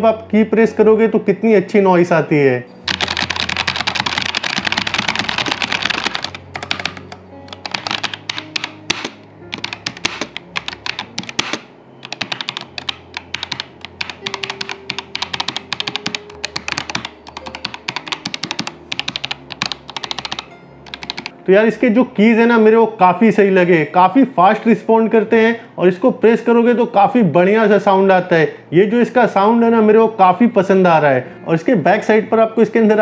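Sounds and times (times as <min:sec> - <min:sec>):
mechanical keyboard key clicks: 0:02.9 - 0:21.3.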